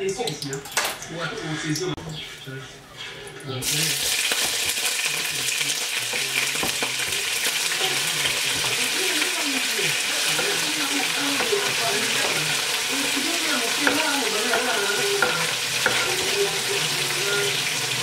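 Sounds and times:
vegetables sizzling in pot: 3.6 - 18.0
spoon tapping: 10.3 - 17.7.

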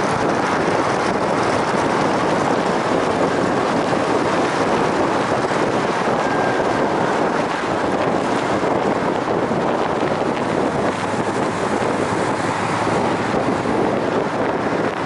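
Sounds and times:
water rushing: 0.0 - 15.0
wind buffeting microphone: 0.0 - 15.0
wind rushing: 0.0 - 15.0.

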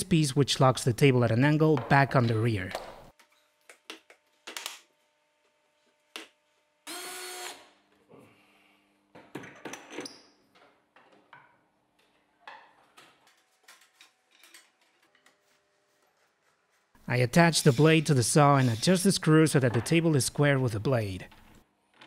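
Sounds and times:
power drill driving a screw: 6.9 - 7.7.

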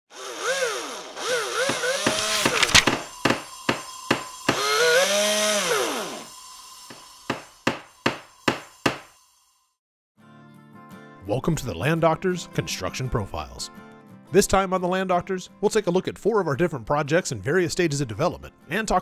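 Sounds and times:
power saw cutting wood: 0.1 - 9.6
sharp knocks: 7.3 - 9.1.

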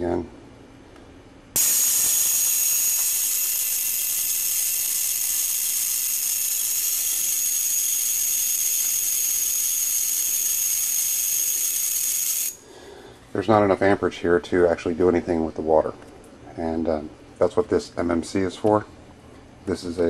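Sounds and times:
electric spark hissing and whining: 1.6 - 12.6.

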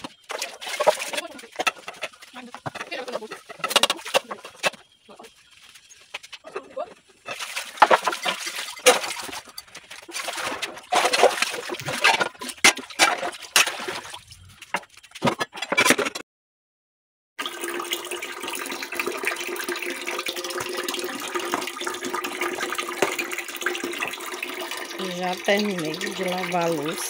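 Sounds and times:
dishes clinking while washed: 0.0 - 4.8, 6.4 - 14.2, 17.4 - 27.0
water splashing: 7.3 - 14.6, 17.4 - 27.0
tap filling a concrete tank: 17.4 - 27.0.

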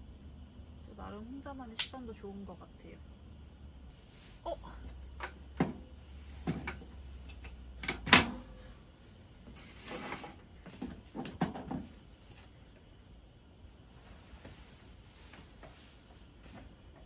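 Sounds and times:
soft rustle: 3.9 - 4.9, 13.6 - 17.0.

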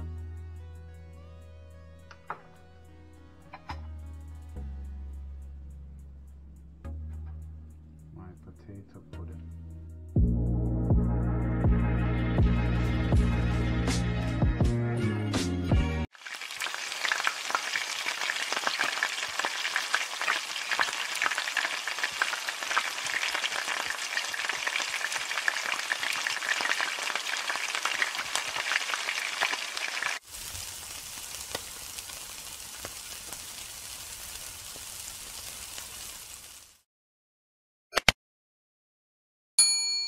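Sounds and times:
food frying in hot oil: 16.1 - 36.8
meat sizzling on a grill: 16.1 - 36.8.

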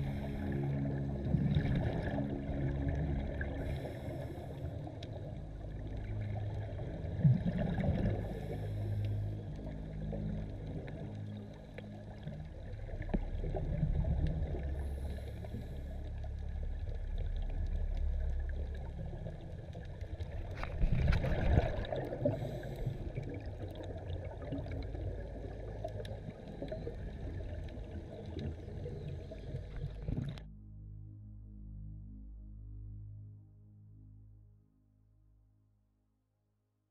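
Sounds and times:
underwater rush of water: 0.0 - 30.4.

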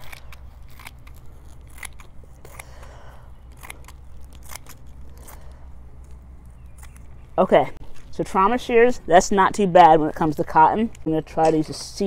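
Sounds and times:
shears snipping fabric: 0.0 - 7.1.

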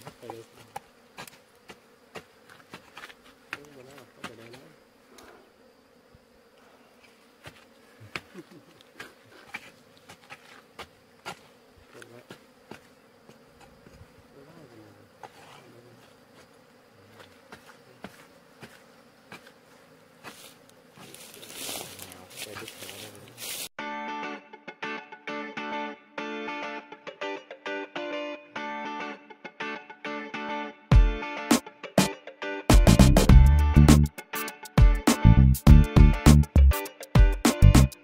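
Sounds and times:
hoe chopping stony soil: 0.0 - 4.7, 7.4 - 14.0, 17.1 - 19.6, 20.2 - 22.9
bees buzzing: 0.0 - 23.7, 24.8 - 38.0.

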